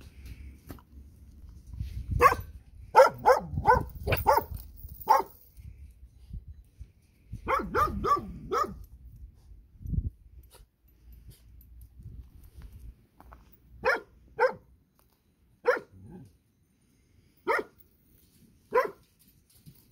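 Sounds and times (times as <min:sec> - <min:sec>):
dog barking: 0:02.2 - 0:04.5, 0:05.1 - 0:05.3, 0:07.5 - 0:08.8, 0:13.8 - 0:14.7, 0:15.6 - 0:16.1, 0:17.5 - 0:17.8, 0:18.7 - 0:19.0.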